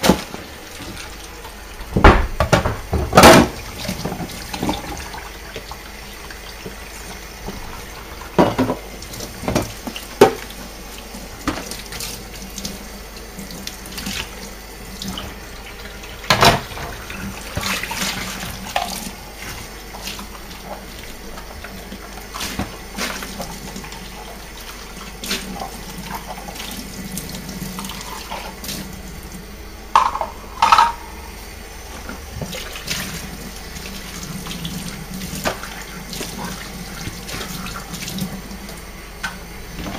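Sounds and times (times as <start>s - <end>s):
plastic items being rinsed: 0.0s - 39.9s
tap running into steel sink: 29.9s - 31.0s.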